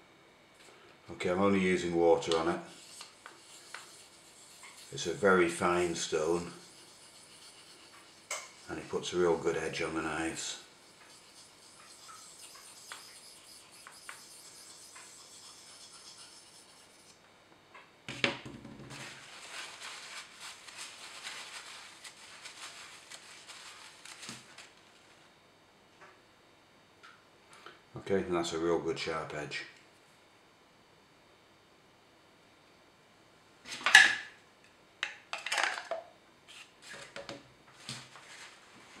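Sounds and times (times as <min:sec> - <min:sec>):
knife on whetstone: 0:02.2 - 0:17.2
paper towel rubbing blade: 0:02.2 - 0:17.2
small knocks and rustles: 0:17.7 - 0:25.1, 0:35.4 - 0:39.0.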